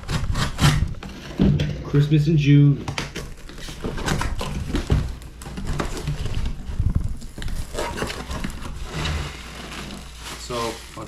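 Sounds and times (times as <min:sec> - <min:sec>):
cardboard flaps crackling: 0:02.8 - 0:11.0
packing tape ripping: 0:07.1 - 0:11.0.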